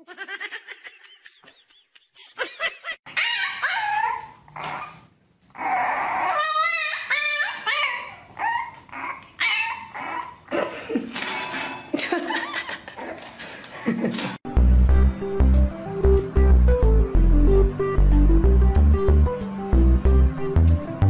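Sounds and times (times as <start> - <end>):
puppy whining and yipping: 3.1 - 10.5.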